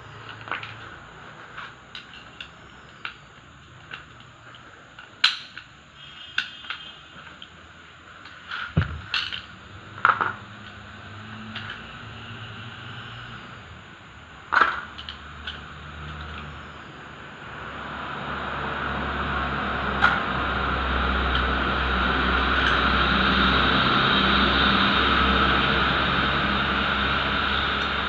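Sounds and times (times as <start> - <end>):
steady rumble: 7.6 - 12.5, 13.3 - 28.0.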